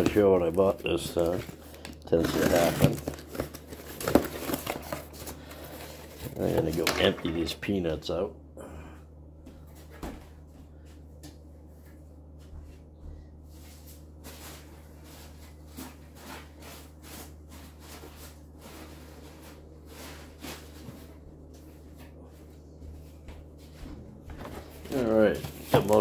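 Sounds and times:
packing peanuts rustling: 0.0 - 7.5, 24.4 - 26.0.

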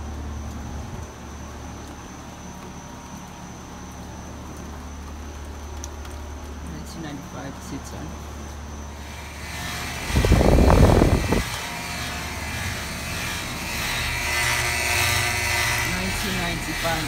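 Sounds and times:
heat pump low hum: 0.0 - 17.0
fan airy rush: 8.9 - 17.0
loud low rumble: 9.2 - 14.8.

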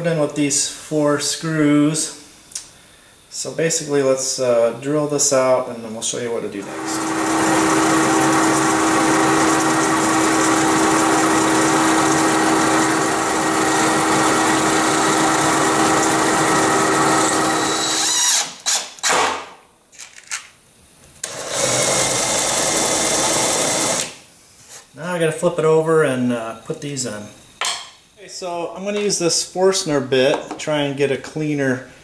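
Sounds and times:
cordless drill spinning: 6.6 - 19.2, 21.2 - 24.2
drill press motor hum: 6.6 - 19.2, 21.2 - 24.2.

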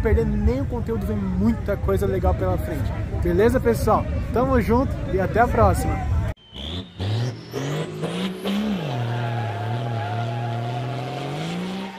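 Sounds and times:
truck engine revving: 6.4 - 11.9.

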